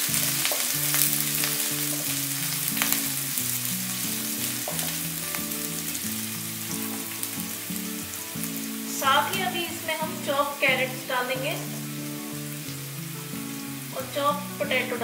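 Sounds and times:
onions sizzling in hot oil: 0:00.0 - 0:15.0
soft background music: 0:00.0 - 0:15.0.

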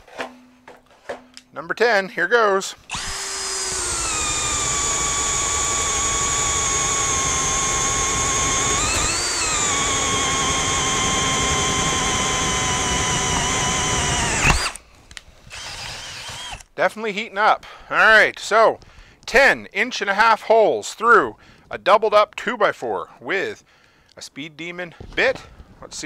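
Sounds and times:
cordless drill boring through wood: 0:02.8 - 0:14.8, 0:15.5 - 0:16.7
drill motor stopping with a knock: 0:02.9 - 0:14.8.

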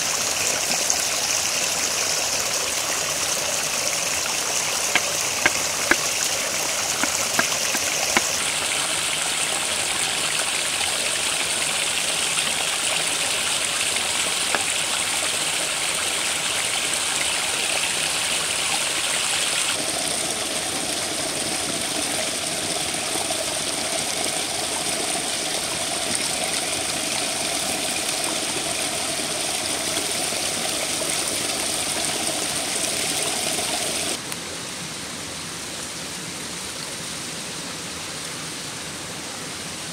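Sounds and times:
running water rushing: 0:00.0 - 0:34.3
knife chopping on wooden board: 0:05.0 - 0:06.2, 0:07.0 - 0:08.3.

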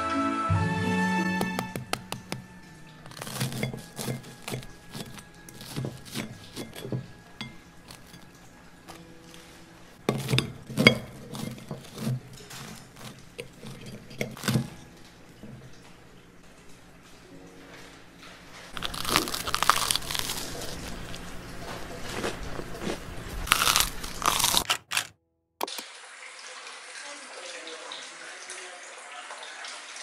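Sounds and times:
toasted sandwich crust crunching: 0:03.0 - 0:07.0, 0:07.9 - 0:09.0, 0:10.1 - 0:14.7, 0:18.7 - 0:25.1
cutlery scraping a plate: 0:03.1 - 0:09.0, 0:10.0 - 0:14.9.

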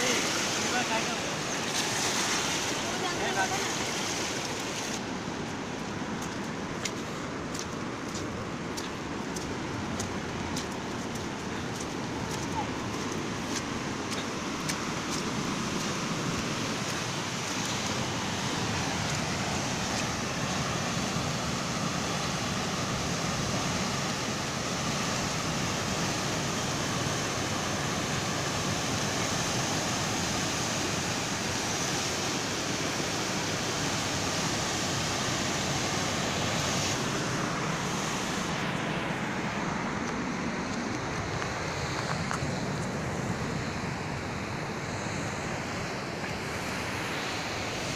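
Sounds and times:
river roaring in rapids: 0:00.0 - 0:47.9.

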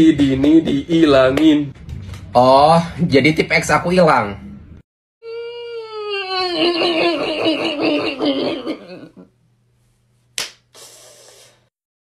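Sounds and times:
wavering vocal cry: 0:05.2 - 0:09.3
sharp slap: 0:10.4 - 0:10.7.

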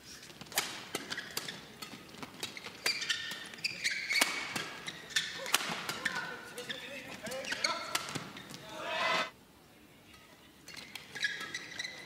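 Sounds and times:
shoes squeaking on court floor: 0:00.2 - 0:09.3, 0:10.7 - 0:12.0
rackets hitting shuttlecock: 0:00.5 - 0:06.3.

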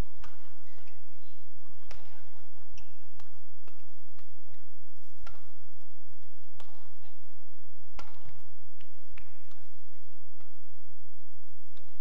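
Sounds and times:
racket hitting shuttlecock: 0:00.0 - 0:01.1, 0:01.7 - 0:07.2, 0:07.9 - 0:10.7
steady low hum: 0:00.0 - 0:12.0.

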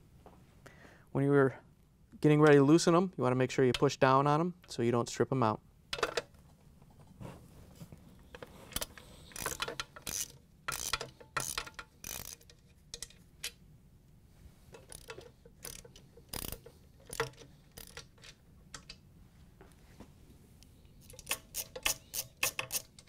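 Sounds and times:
socket ratchet clicking: 0:08.8 - 0:13.6, 0:14.8 - 0:19.0, 0:21.0 - 0:23.0.

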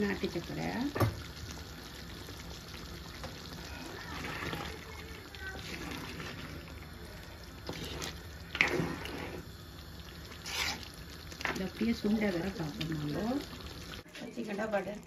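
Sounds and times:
curry bubbling: 0:00.0 - 0:15.0
wooden spoon stirring: 0:02.9 - 0:09.6, 0:10.3 - 0:12.6.

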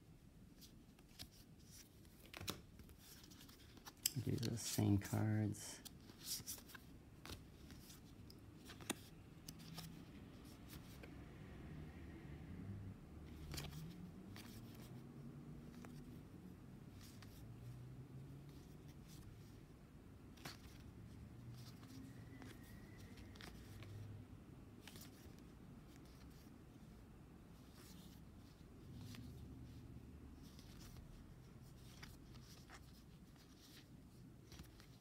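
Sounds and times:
cards being flipped through: 0:00.6 - 0:11.2, 0:13.3 - 0:15.0, 0:15.6 - 0:16.2, 0:16.9 - 0:17.4, 0:20.2 - 0:20.9, 0:21.5 - 0:24.2, 0:24.8 - 0:26.9, 0:30.4 - 0:35.0.

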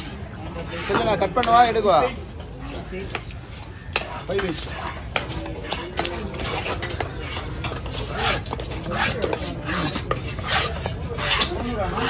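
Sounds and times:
knife scraping fish scales: 0:04.0 - 0:12.0.

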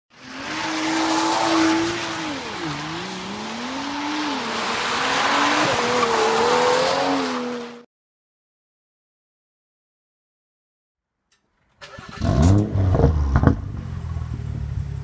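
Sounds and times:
car engine accelerating: 0:00.1 - 0:07.8, 0:11.8 - 0:15.0
tyre and road noise: 0:00.1 - 0:07.8, 0:11.8 - 0:15.0.

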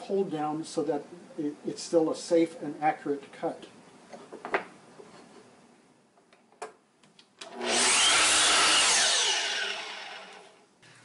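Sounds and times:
miter saw cutting wood: 0:07.4 - 0:10.6.

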